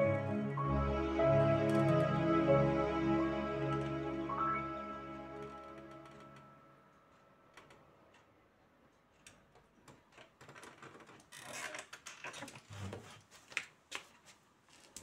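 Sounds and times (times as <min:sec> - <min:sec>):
clicks and rustling of person moving: 0:09.0 - 0:15.0.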